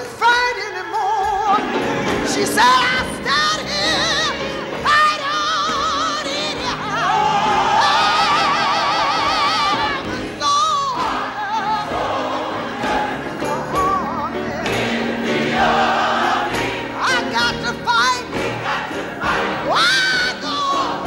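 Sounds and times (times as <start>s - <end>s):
woman singing gospel: 0.0s - 1.7s, 2.3s - 12.1s
choir singing: 0.0s - 21.0s.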